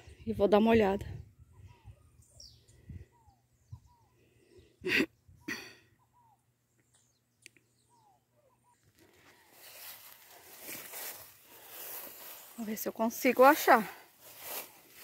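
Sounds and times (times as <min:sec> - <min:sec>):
faint bird chirps: 0:01.1 - 0:11.3.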